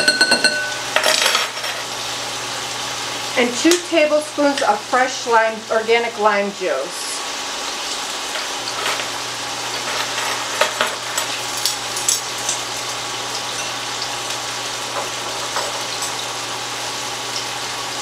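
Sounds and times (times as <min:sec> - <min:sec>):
low steady hum: 0:00.0 - 0:01.4
meat sizzling in a pan: 0:00.7 - 0:18.0.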